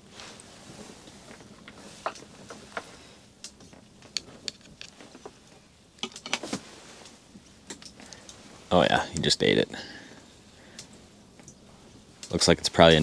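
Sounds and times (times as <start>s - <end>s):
light clicks and taps of gear: 0.4s - 8.4s, 9.1s - 9.7s, 12.2s - 13.0s.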